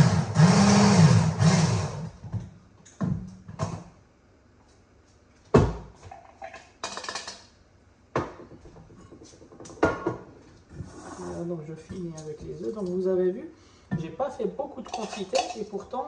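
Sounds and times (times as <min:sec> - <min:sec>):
electric kitchen mixer running: 0:00.0 - 0:02.1
dishes and utensils clattering: 0:06.0 - 0:07.4, 0:08.2 - 0:10.9, 0:14.8 - 0:15.9.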